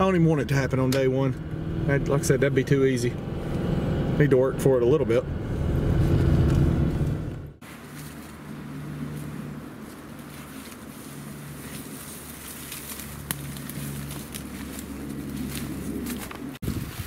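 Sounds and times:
dry reeds rustling and crackling: 0:07.6 - 0:17.0
footsteps through reeds: 0:07.6 - 0:17.0.

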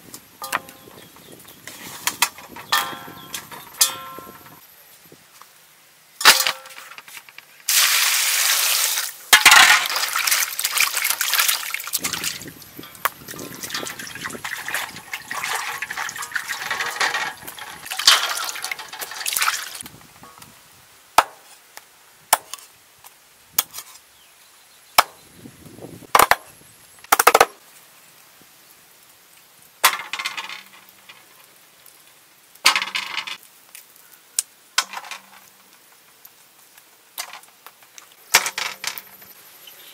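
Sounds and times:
water splashing and pouring: 0:07.7 - 0:19.8.

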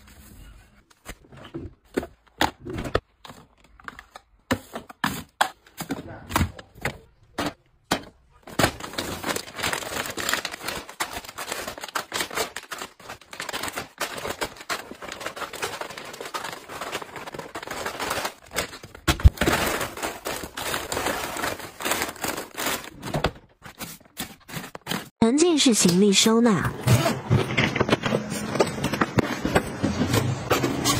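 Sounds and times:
plastic packets crinkling: 0:08.4 - 0:25.1.

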